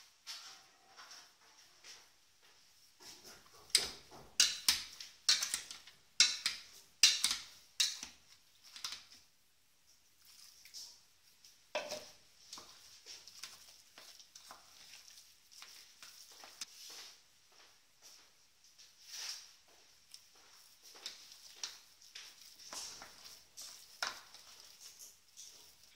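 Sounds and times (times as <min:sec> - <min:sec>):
potato masher knocking metal pan: 0:03.7 - 0:08.0
soft mashing clicks and scrapes: 0:12.4 - 0:17.1, 0:20.1 - 0:25.9.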